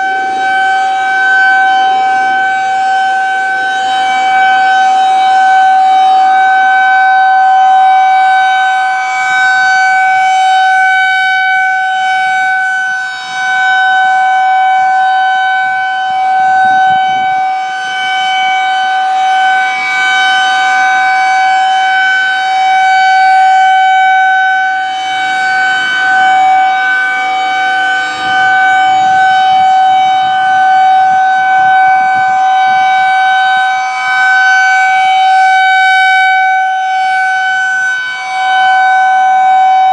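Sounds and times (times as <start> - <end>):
rotating warning siren: 0.0 - 39.9.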